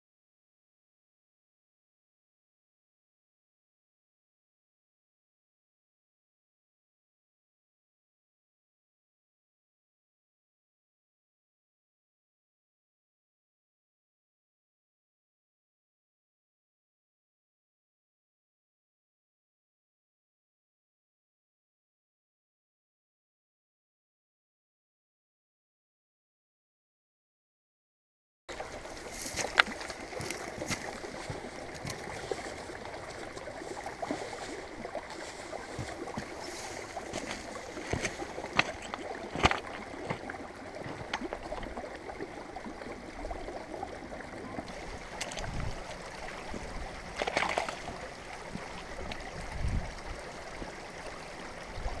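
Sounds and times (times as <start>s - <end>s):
stream trickling over stones: 28.5s - 52.0s.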